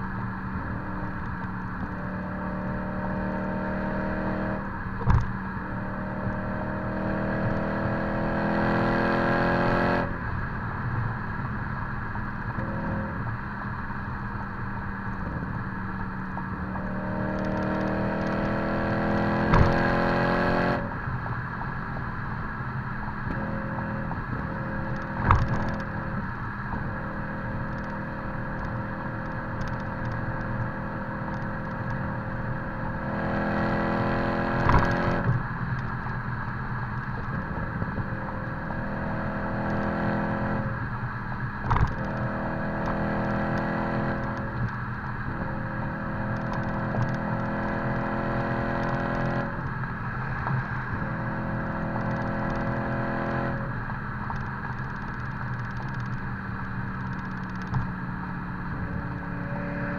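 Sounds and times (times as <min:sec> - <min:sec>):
road noise: 0:00.0 - 0:59.9
car exhaust note: 0:11.2 - 0:36.4.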